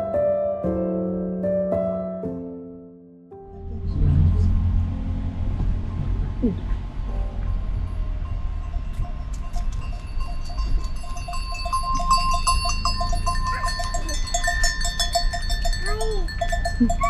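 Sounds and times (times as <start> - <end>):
low rumble: 3.4 - 17.0
animal bells tinkling and clanking: 7.5 - 17.0.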